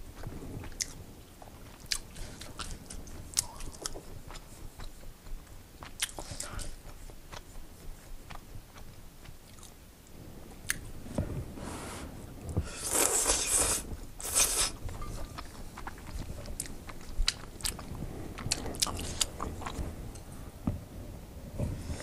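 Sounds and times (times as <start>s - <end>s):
wet chewing: 0.0s - 9.8s, 12.5s - 20.3s
noodle slurping: 12.5s - 19.8s.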